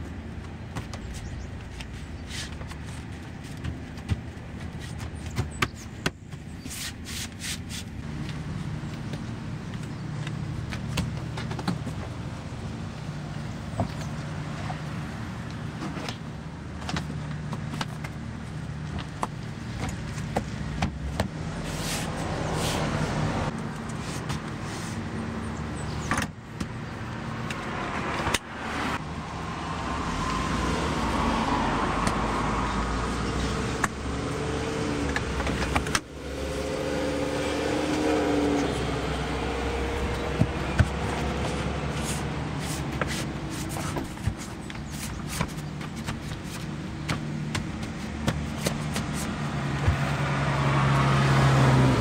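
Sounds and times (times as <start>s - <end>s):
rubbery rustles: 40.4s - 50.1s.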